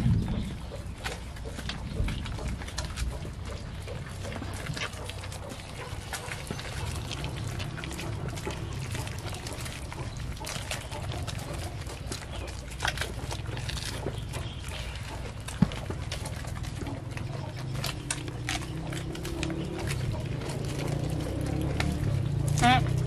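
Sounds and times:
low rumble: 0:00.0 - 0:11.5
goats chewing and smacking: 0:00.0 - 0:23.0.

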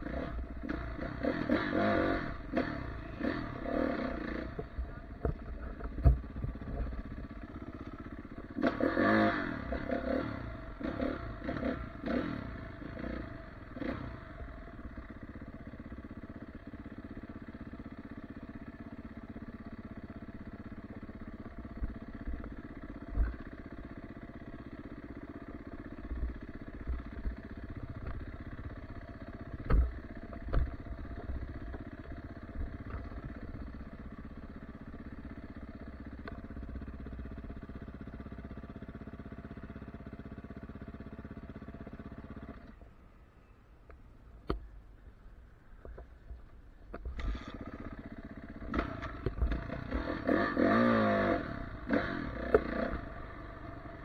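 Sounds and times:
dirt bike engine revving: 0:00.0 - 0:38.9, 0:47.1 - 0:54.0
bike thumping over bumps: 0:04.6 - 0:07.0, 0:29.5 - 0:31.9.

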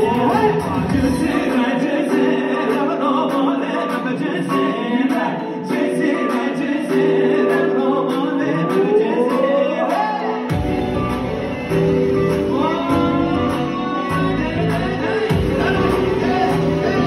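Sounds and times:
deep bass: 0:00.0 - 0:01.4, 0:10.5 - 0:17.0
man singing long sliding notes: 0:00.0 - 0:17.0.

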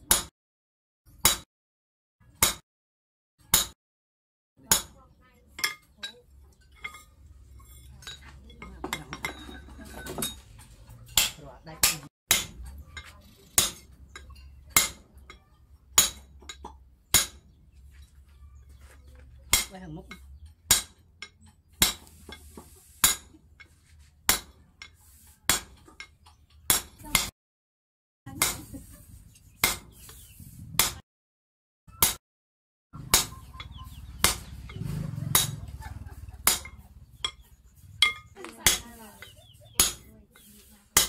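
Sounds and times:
sledgehammer clanking on metal: 0:05.6 - 0:15.4, 0:33.0 - 0:35.8, 0:36.4 - 0:40.1.

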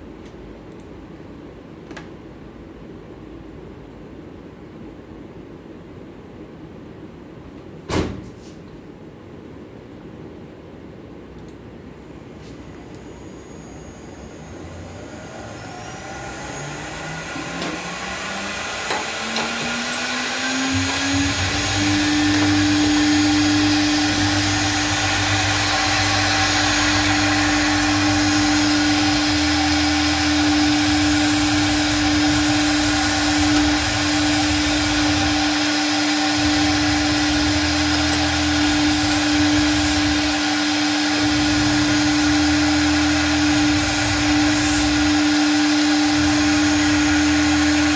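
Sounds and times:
router spindle whine: 0:12.2 - 0:47.9
router bit cutting sheet: 0:12.6 - 0:47.9.

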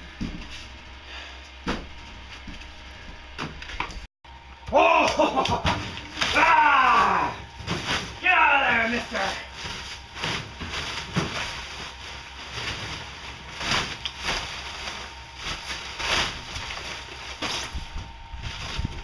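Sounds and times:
steady low hum: 0:00.0 - 0:19.0
plastic wrap rustling: 0:05.3 - 0:19.0.

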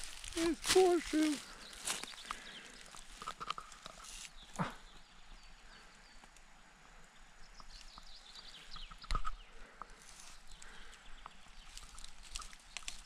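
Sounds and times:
footsteps crunching dry leaves: 0:00.0 - 0:04.5, 0:11.6 - 0:13.0
small bird calling: 0:00.0 - 0:06.3.

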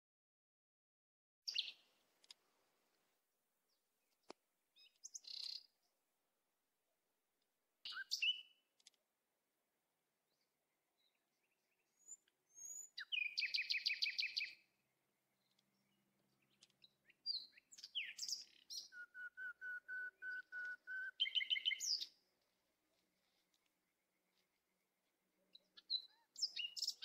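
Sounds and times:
songbirds singing: 0:01.5 - 0:02.4, 0:03.7 - 0:06.0, 0:07.8 - 0:09.0, 0:10.2 - 0:27.0.

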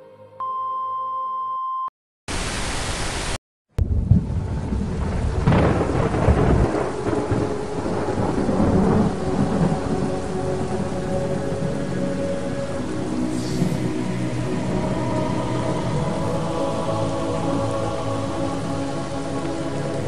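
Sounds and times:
steady high beep: 0:00.4 - 0:01.9
static hiss: 0:02.3 - 0:03.4, 0:07.1 - 0:20.0
steady rain: 0:02.3 - 0:20.0
thunderclap rumbling: 0:03.8 - 0:16.4.

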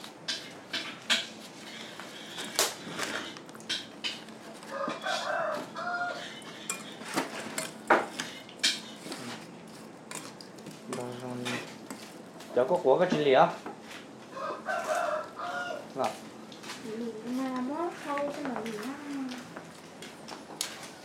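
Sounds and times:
dishes and utensils clinking: 0:06.2 - 0:09.2, 0:10.9 - 0:12.1.

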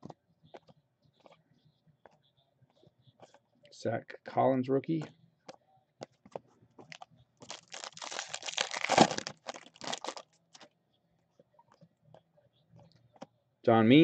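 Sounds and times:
foil wrapper crinkling: 0:06.9 - 0:10.3.

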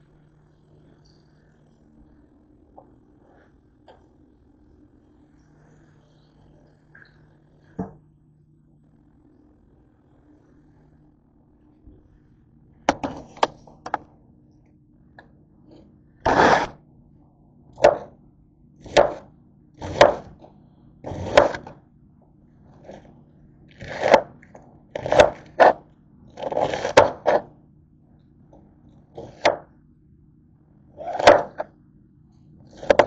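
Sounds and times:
knife chopping cabbage: 0:16.3 - 0:16.8, 0:17.8 - 0:18.1, 0:18.8 - 0:20.4, 0:21.1 - 0:21.8, 0:23.7 - 0:24.4, 0:25.0 - 0:25.8, 0:26.4 - 0:27.5, 0:29.2 - 0:29.7, 0:31.0 - 0:31.7, 0:32.7 - 0:33.0.

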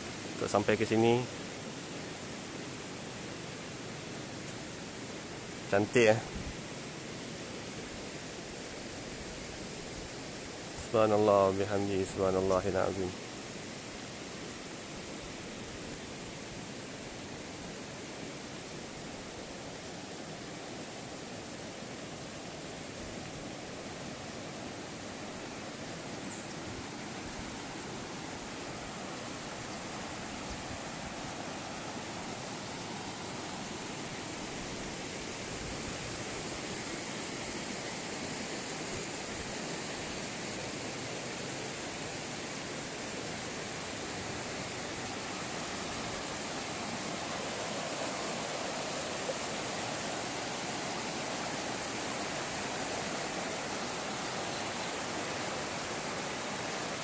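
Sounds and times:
stream water flowing: 0:00.0 - 0:57.0.

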